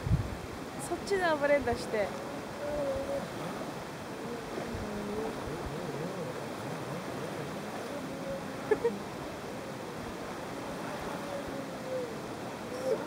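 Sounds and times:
distant jet ski engine: 0.0s - 13.0s
wind and water: 0.0s - 13.0s.

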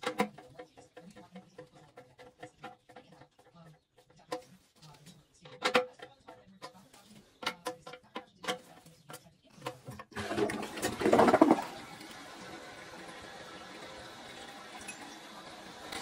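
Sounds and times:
toilet flushing: 10.1s - 16.0s.

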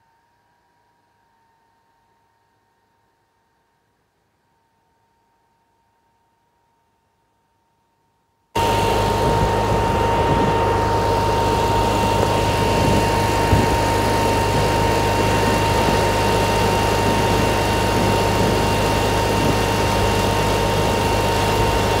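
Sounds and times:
engine running with whine: 8.6s - 22.0s.

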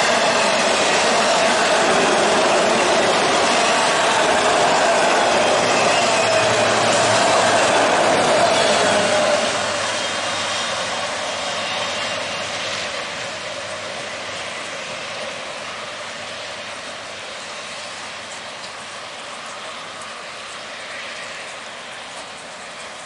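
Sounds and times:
train wheels rumbling on rails: 0.0s - 23.0s.

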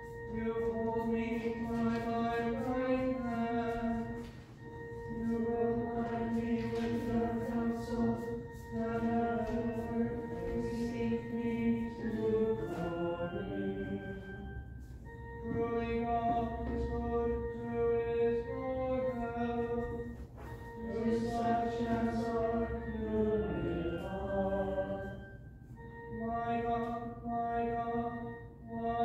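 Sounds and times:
sustained organ chords: 0.0s - 29.0s
group singing a slow chant: 5.0s - 14.4s, 20.8s - 25.2s.

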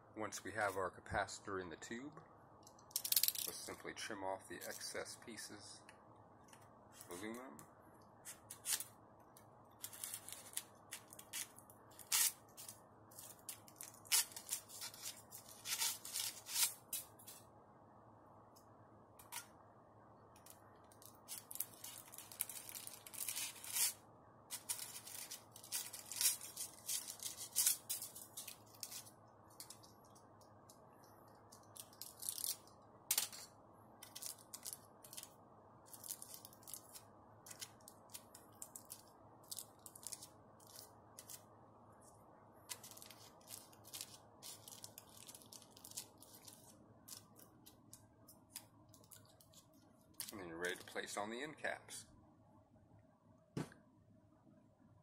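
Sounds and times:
knife cutting crinkling foil: 9.8s - 17.4s, 21.3s - 29.8s, 42.7s - 47.4s.

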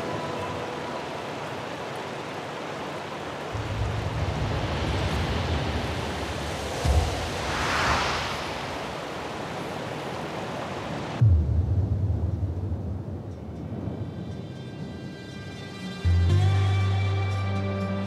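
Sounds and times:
river rushing over stones: 0.0s - 11.2s
short low thump: 6.7s - 8.8s.

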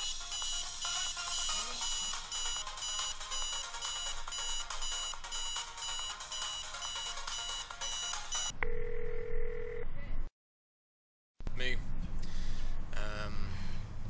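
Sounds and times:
cell phone ringtone beeping: 0.0s - 9.8s.

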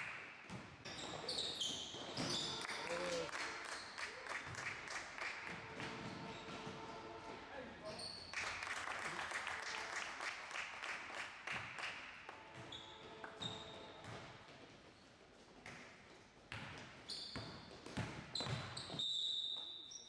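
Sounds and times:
sneakers squeaking on gym floor: 0.5s - 2.8s, 5.6s - 7.0s, 7.8s - 8.4s, 12.5s - 20.0s
basketball dribbling: 13.4s - 14.3s.

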